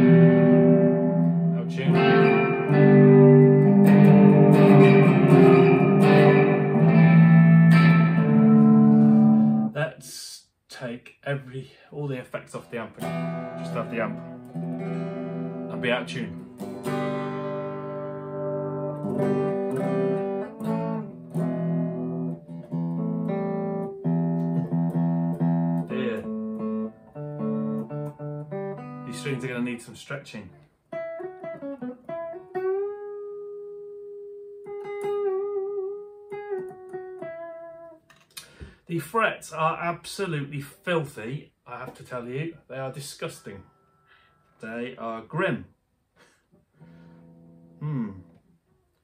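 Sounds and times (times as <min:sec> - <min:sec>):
electric guitar chords strummed: 0:00.0 - 0:09.7, 0:13.0 - 0:29.5, 0:30.9 - 0:38.7.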